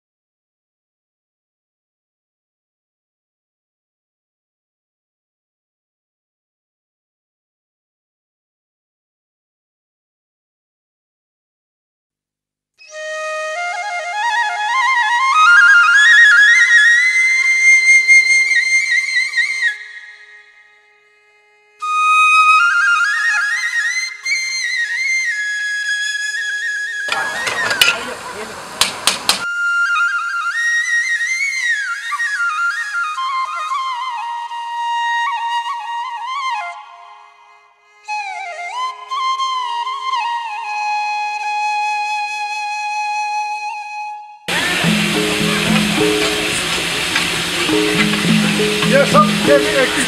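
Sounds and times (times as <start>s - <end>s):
flute playing folk melody: 12.8s - 28.7s, 29.4s - 50.0s.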